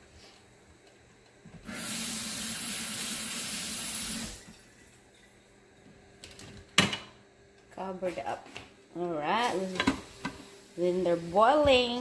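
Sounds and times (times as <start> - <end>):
water running: 1.6 - 5.5.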